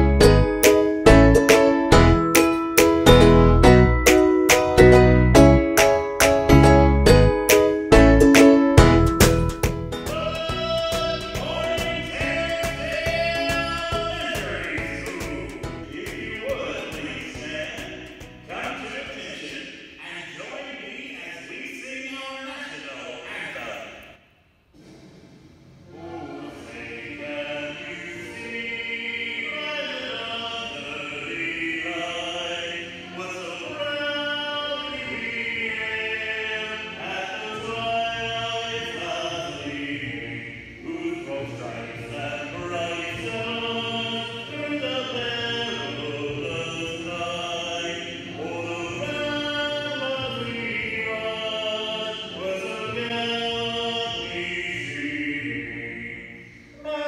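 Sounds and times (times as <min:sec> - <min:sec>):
choir singing long notes: 0:24.8 - 0:57.0.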